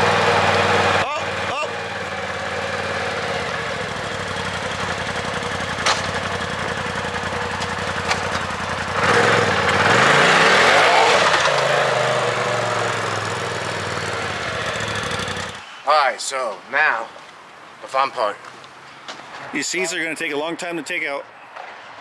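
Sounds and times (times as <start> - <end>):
vehicle engine running: 0.0 - 15.6.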